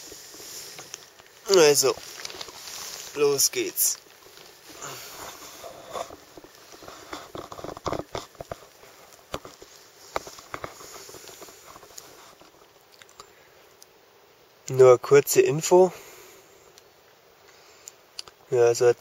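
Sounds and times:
plastic tarp rustling: 0.0 - 12.8.

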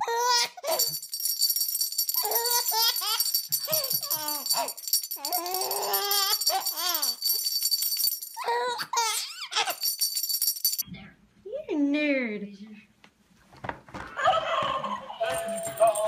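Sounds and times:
high jingling: 0.6 - 10.8, 15.2 - 16.0
baby laughing and squealing: 8.4 - 9.8.

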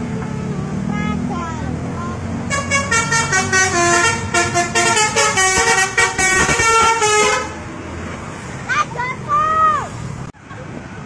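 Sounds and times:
musical air horn playing a tune: 2.5 - 7.6.

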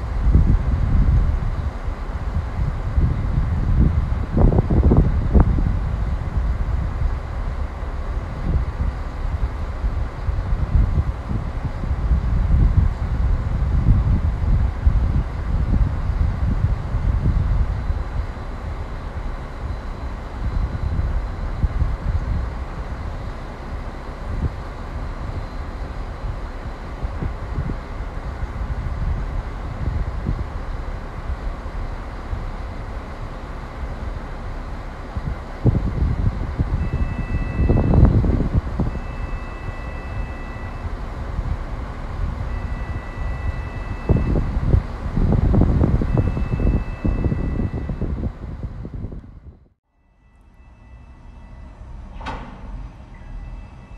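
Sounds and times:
wind buffeting microphone: 0.0 - 49.8
diesel locomotive rumbling: 0.0 - 53.9
faint two-note beep: 36.8 - 38.0, 38.9 - 40.9, 42.5 - 44.4, 46.1 - 48.0.

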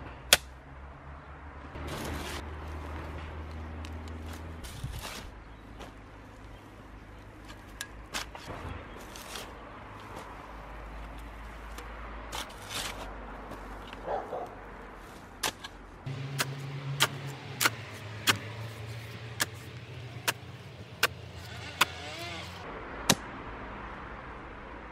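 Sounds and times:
shovel scraping soil: 1.8 - 2.5, 4.2 - 5.4, 8.1 - 10.2, 11.7 - 14.0, 15.0 - 22.6.

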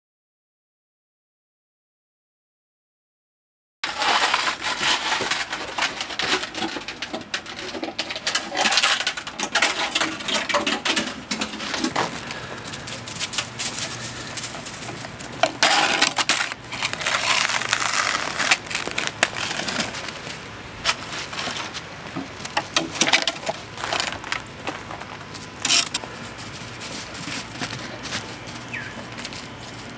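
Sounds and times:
dog paws crunching in snow: 11.3 - 16.0, 23.4 - 29.9.

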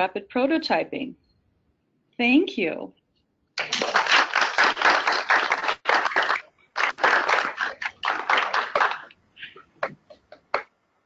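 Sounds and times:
people clapping: 3.6 - 10.7.

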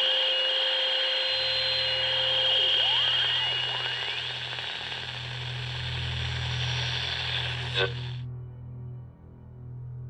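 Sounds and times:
radio static with whistling tones: 0.0 - 8.2
low steady hum: 0.0 - 10.0.

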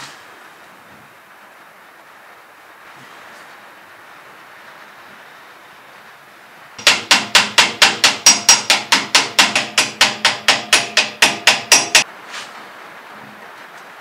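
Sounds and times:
hammer tapping on metal: 6.8 - 12.1.

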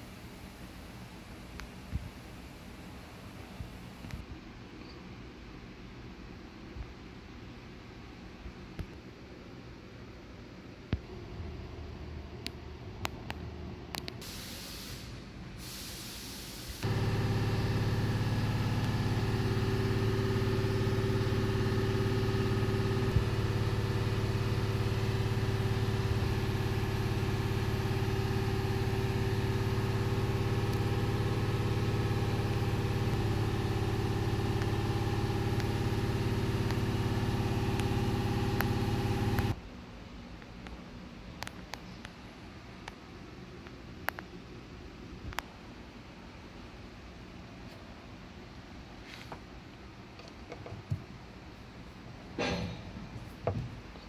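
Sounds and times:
machine humming: 16.8 - 39.6.

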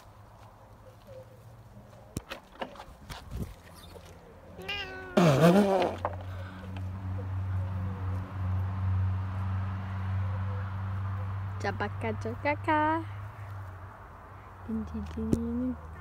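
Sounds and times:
cat meowing: 4.6 - 5.3.

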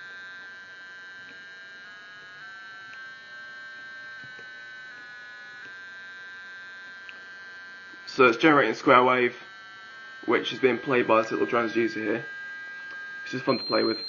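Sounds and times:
square-wave tone: 3.8 - 14.0.

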